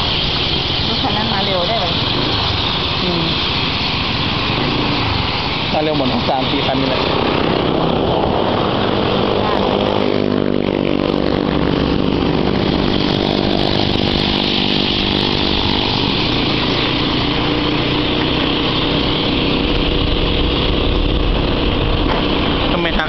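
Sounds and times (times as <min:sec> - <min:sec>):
small motorcycle engine running: 0:00.0 - 0:23.0
wind rumble on microphone: 0:00.0 - 0:23.0.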